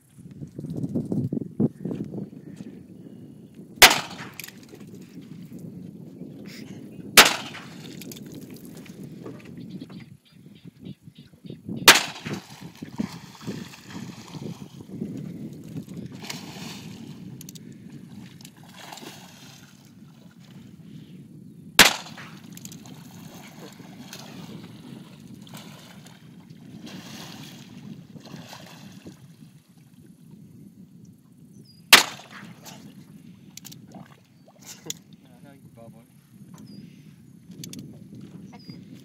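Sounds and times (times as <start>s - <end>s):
handgun shots: 3.8s - 4.6s, 7.2s - 7.8s, 11.9s - 12.4s, 21.8s - 22.4s, 32.0s - 32.6s.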